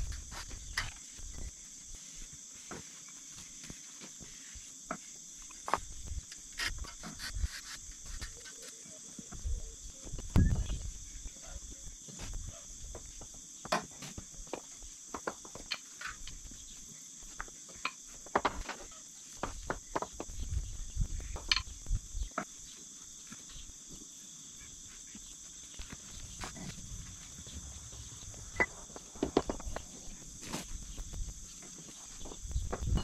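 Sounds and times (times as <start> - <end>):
high-pitched insect chorus: 0.0 - 33.0.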